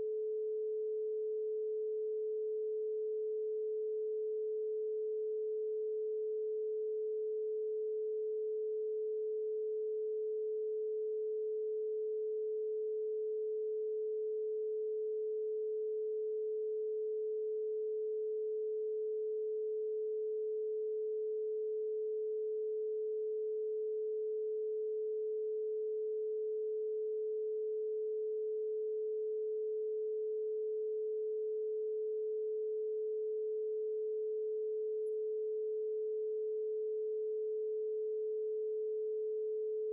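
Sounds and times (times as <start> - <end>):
steady electronic sine tone: 0.0 - 39.9.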